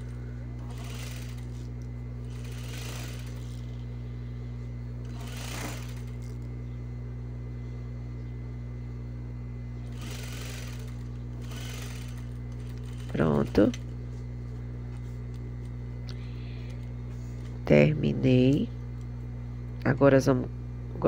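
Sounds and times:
sewing machine stitching: 0:00.0 - 0:01.7, 0:02.3 - 0:03.7, 0:05.0 - 0:06.3, 0:09.9 - 0:13.8.

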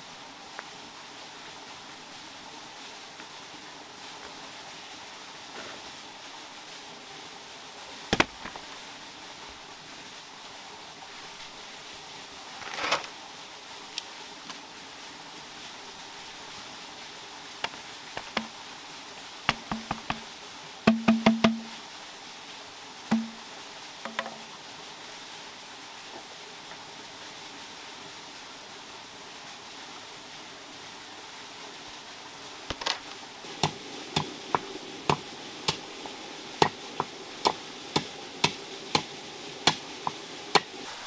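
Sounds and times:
background hiss: 0:00.0 - 0:41.0
sharp wooden knocks: 0:19.5 - 0:20.2, 0:20.9 - 0:21.7, 0:23.1 - 0:23.4.

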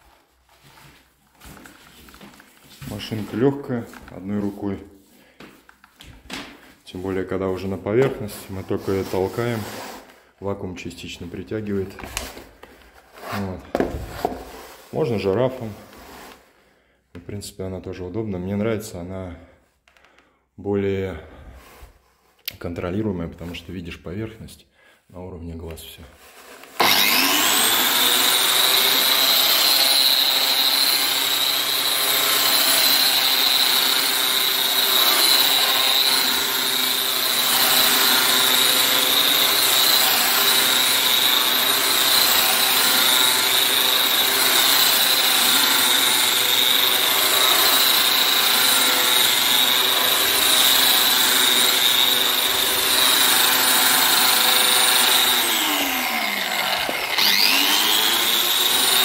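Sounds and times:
sander pad grinding concrete: 0:00.0 - 0:05.6, 0:06.4 - 0:16.5, 0:25.8 - 0:59.0
wall sander whining: 0:00.0 - 0:16.6, 0:26.2 - 0:59.0.

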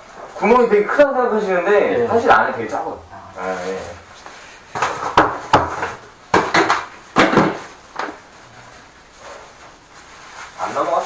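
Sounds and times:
knocks on tiled floor: 0:04.7 - 0:08.2.

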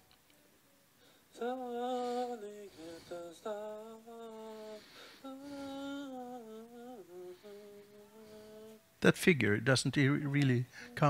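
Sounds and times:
man singing held notes: 0:01.3 - 0:08.9, 0:10.0 - 0:11.0.

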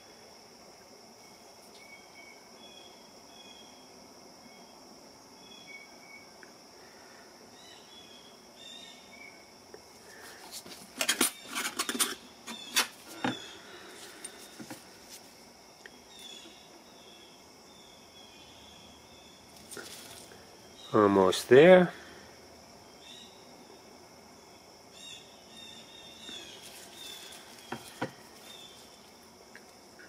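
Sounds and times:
faint high tone with chirps: 0:01.2 - 0:06.5.

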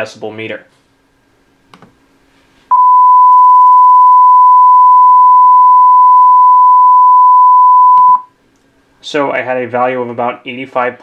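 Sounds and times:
steady pure test tone: 0:02.7 - 0:08.2.

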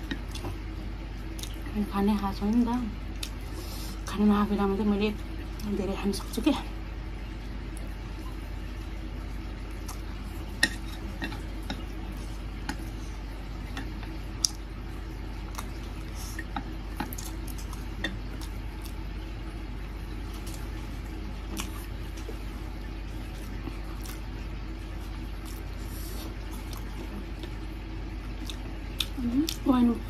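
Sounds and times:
steady low hum: 0:00.0 - 0:30.0
chewing: 0:09.7 - 0:14.6, 0:15.4 - 0:19.1, 0:20.3 - 0:22.5, 0:23.2 - 0:24.4, 0:25.0 - 0:29.7.

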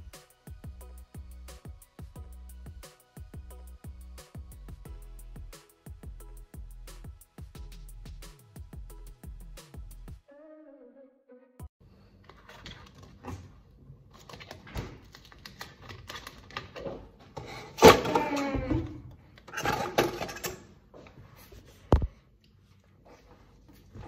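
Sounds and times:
objects knocking and clattering: 0:14.2 - 0:20.7.

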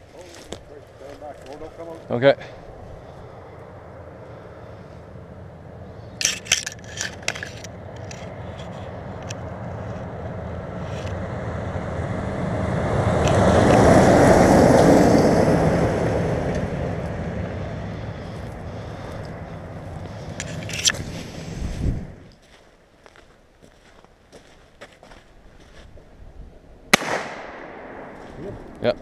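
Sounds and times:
vehicle driving on gravel: 0:00.0 - 0:26.2
clicks and rustles close by: 0:06.2 - 0:10.1, 0:20.1 - 0:21.4.

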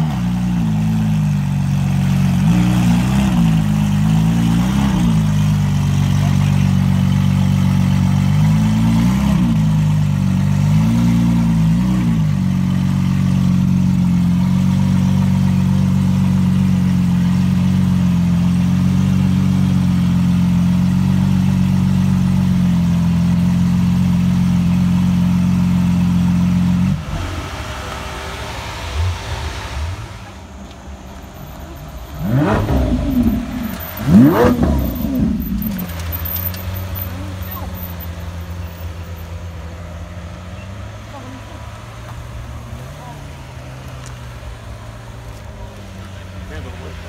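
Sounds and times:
car engine idling: 0:00.0 - 0:47.0
engine throttle blips: 0:26.6 - 0:39.4.

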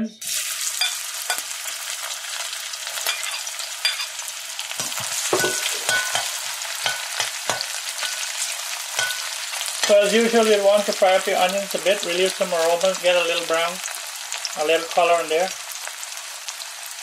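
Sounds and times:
onions sizzling in oil: 0:00.2 - 0:17.0
metal spoon scraping a pot: 0:04.8 - 0:10.0.

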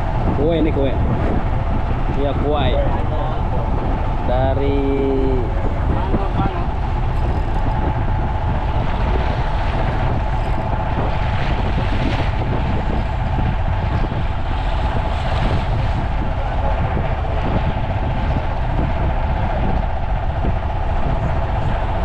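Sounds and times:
boat engine running: 0:00.0 - 0:22.0
water around hull: 0:00.0 - 0:22.0
wind buffeting microphone: 0:00.0 - 0:22.0.

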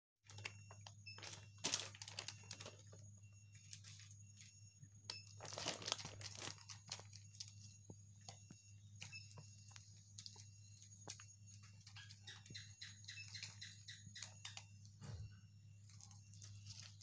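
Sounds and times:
small crinkly clicks: 0:00.3 - 0:03.0, 0:05.1 - 0:07.6.

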